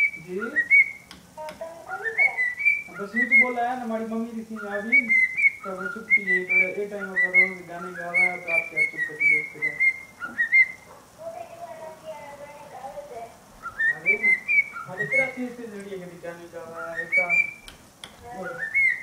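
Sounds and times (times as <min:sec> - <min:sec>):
cockatiel whistling and warbling: 0:00.0 - 0:03.8, 0:04.4 - 0:11.0, 0:13.6 - 0:15.5, 0:16.6 - 0:19.0.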